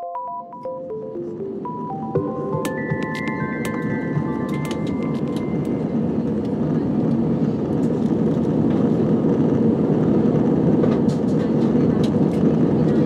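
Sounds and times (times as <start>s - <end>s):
jet airliner cabin rumble: 1.2s - 13.0s.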